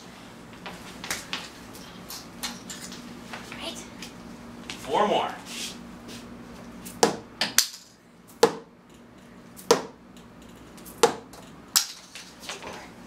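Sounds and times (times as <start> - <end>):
darts thudding into corkboard: 9.6 - 10.0, 11.0 - 12.1.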